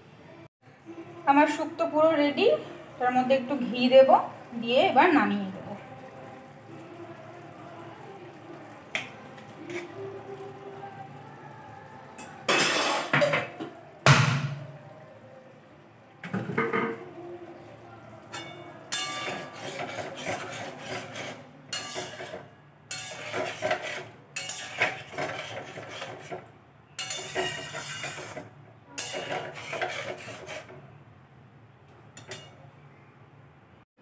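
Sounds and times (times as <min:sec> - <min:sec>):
metal spatula scraping pan: 0:09.5 - 0:10.0, 0:18.3 - 0:30.9
spatula clinking against pan: 0:18.3 - 0:26.1, 0:27.0 - 0:28.4, 0:29.0 - 0:30.0.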